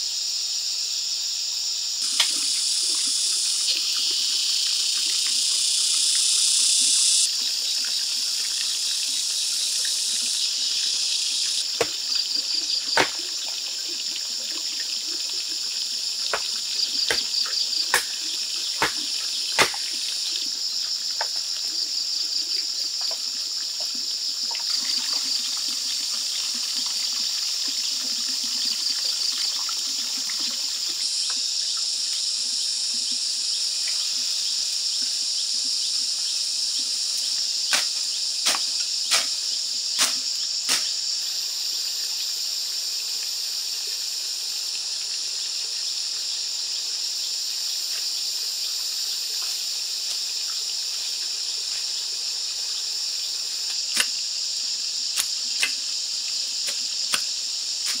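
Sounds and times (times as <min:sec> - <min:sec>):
insects chorus: 0:00.0 - 0:58.0
machete chopping brush: 0:02.1 - 0:02.4, 0:11.8 - 0:12.0, 0:13.0 - 0:13.3, 0:16.3 - 0:20.1, 0:37.7 - 0:39.4, 0:40.0 - 0:41.0, 0:53.7 - 0:54.2, 0:56.6 - 0:58.0.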